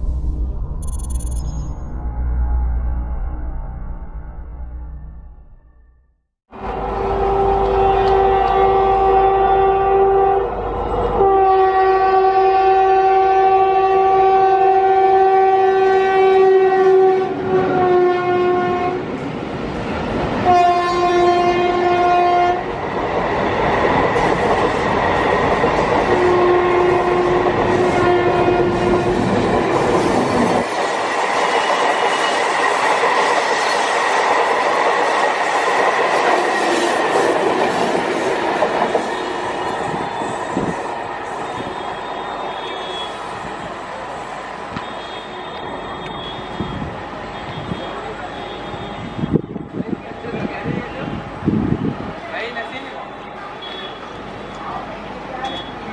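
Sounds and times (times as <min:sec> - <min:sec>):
locomotive air horn blasts: 0:06.6 - 0:10.6, 0:11.2 - 0:19.1, 0:20.4 - 0:22.7, 0:26.2 - 0:29.3, 0:44.8 - 0:49.4, 0:53.6 - 0:54.2.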